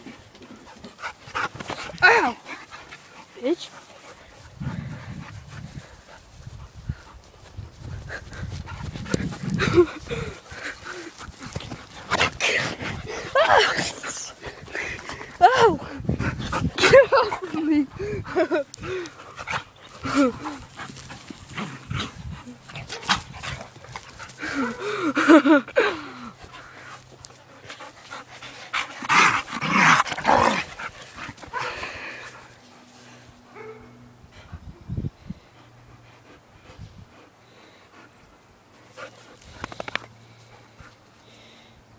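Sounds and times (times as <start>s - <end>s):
dogs growling while play-fighting: 8.1s - 25.1s, 26.2s - 32.6s.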